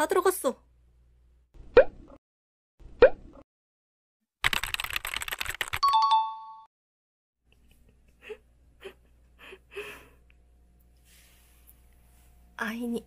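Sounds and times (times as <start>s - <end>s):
room hum: 7.5s - 13.0s.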